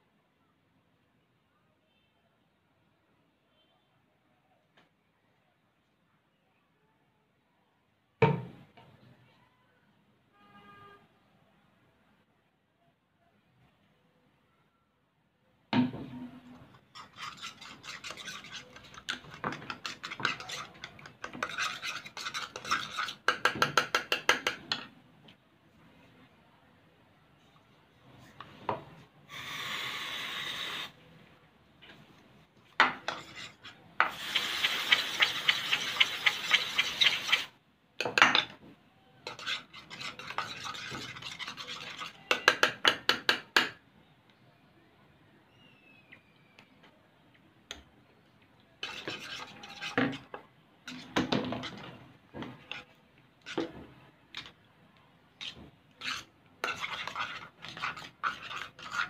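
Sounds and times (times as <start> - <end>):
spoon stirring in a bowl: 16.5 - 24.9, 32.8 - 38.6, 39.2 - 43.8, 48.8 - 54.6, 55.4 - 59.0
aerosol spray hissing: 29.3 - 30.9.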